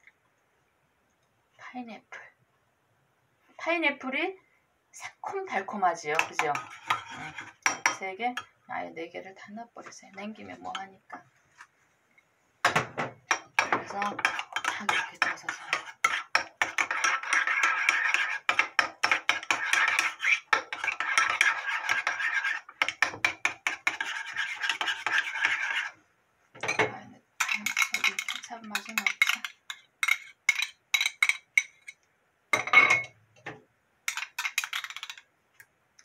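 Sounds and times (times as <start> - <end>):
spoon stirring in ceramic bowl: 6.0 - 8.5, 12.7 - 26.0, 26.6 - 32.0, 34.1 - 35.2
spoon scrapes and taps: 6.1 - 8.5, 9.8 - 26.0, 26.6 - 33.2, 34.1 - 35.7.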